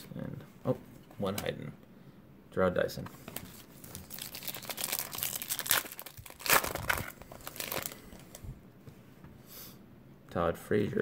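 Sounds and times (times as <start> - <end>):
foil wrapper crinkling and tearing: 3.4 - 8.4.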